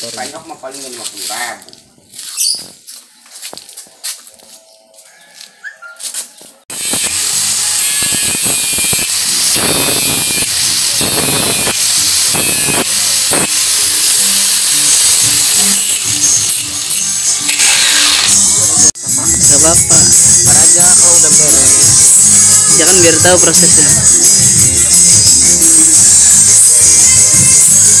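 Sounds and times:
angle grinder cutting metal: 6.7 - 19.0
background music: 17.4 - 28.0.

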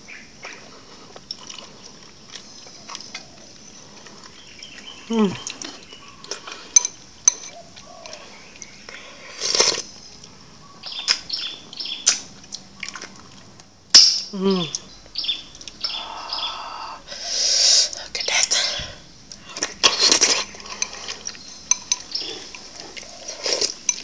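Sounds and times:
chewing and mouth smacks: 0.4 - 8.7, 12.1 - 13.7
bird chirps: 2.4 - 9.2, 9.8 - 12.2, 14.4 - 17.0, 20.4 - 22.6.

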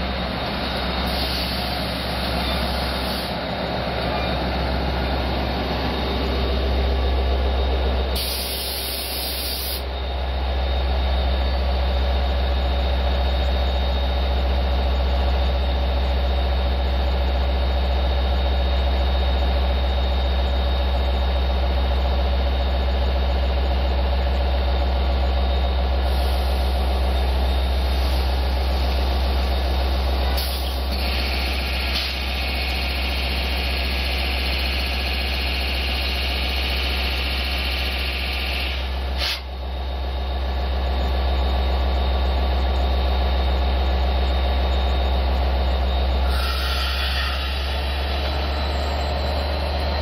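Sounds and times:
locomotive engine hum: 0.0 - 38.1, 38.7 - 50.0
air hiss: 1.0 - 2.1, 8.2 - 9.8, 38.7 - 39.5, 46.3 - 47.9.

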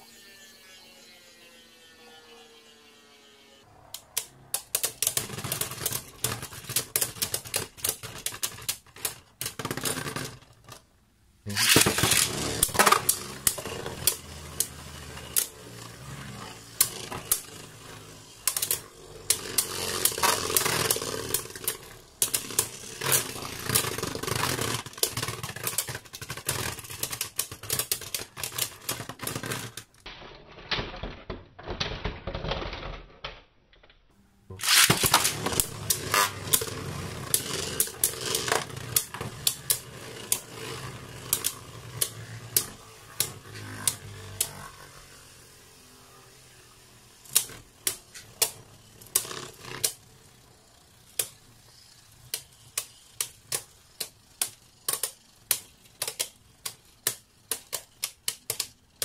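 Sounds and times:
spinning tops colliding: 11.5 - 29.8, 34.6 - 44.9
spinning whir: 11.5 - 29.8, 34.6 - 58.0.

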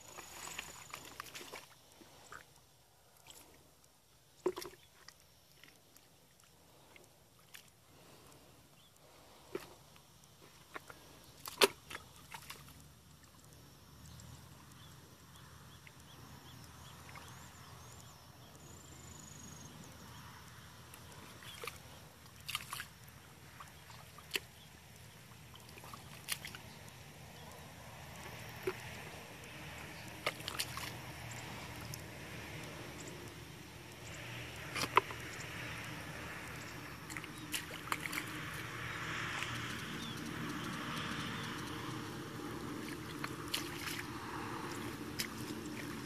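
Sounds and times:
sharp water splashes: 0.0 - 2.4, 10.5 - 13.4, 21.0 - 46.0
hands sloshing in muddy water: 0.0 - 2.5, 9.0 - 13.3, 21.0 - 46.0.

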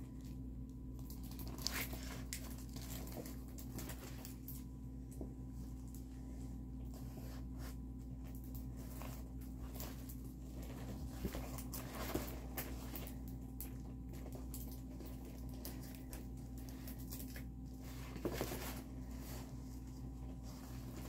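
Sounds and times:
low hum: 0.0 - 21.0
faint rustling of canvas: 5.4 - 21.0.

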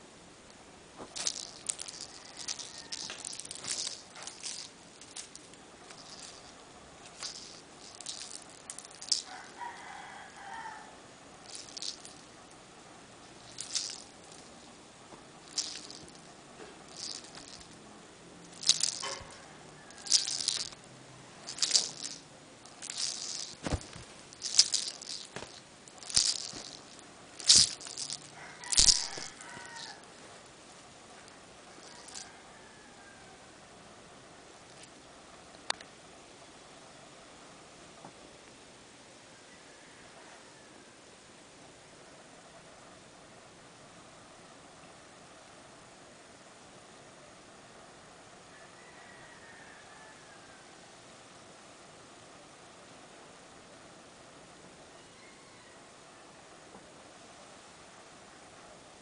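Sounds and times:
cat toy rattling swishes: 1.0 - 9.6, 11.4 - 12.2, 13.4 - 14.7, 15.4 - 17.8, 18.5 - 20.8, 21.4 - 30.1.

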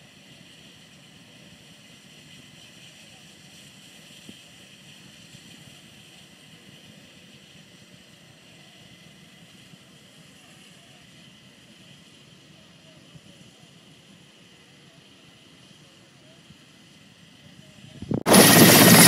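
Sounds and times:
low rumble: 18.0 - 19.0.

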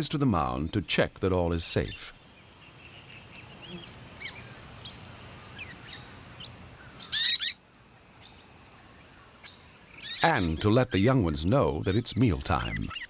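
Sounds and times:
high insect drone: 1.8 - 10.6
parrot chirps: 7.0 - 7.6.

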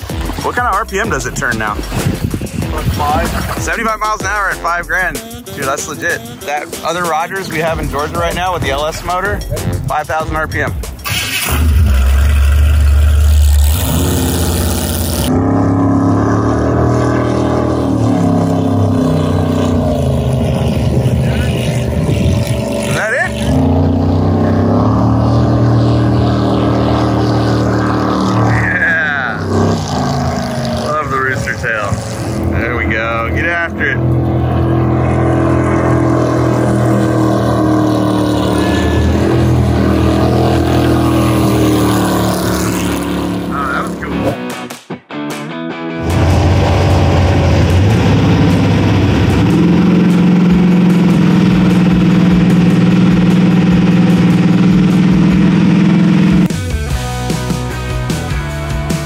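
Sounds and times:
boat engine running: 0.0 - 44.4, 46.0 - 59.0.

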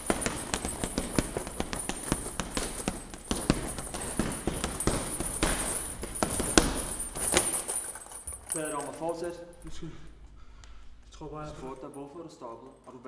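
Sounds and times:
boxing gloves striking punching bag: 0.0 - 8.2.

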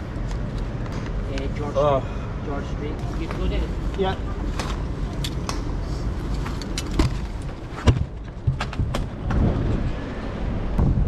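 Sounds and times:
bike and camera jostling clicks: 3.2 - 9.8
wind rushing on microphone: 8.4 - 11.0.

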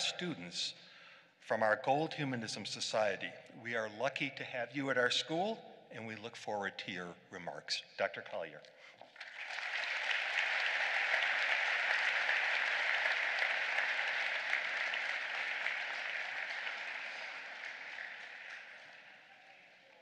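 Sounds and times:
audience applauding: 9.0 - 20.0.

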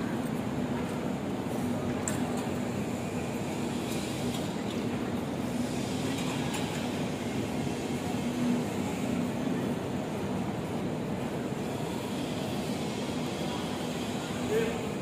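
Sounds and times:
terminal hall rumble: 0.0 - 15.0.

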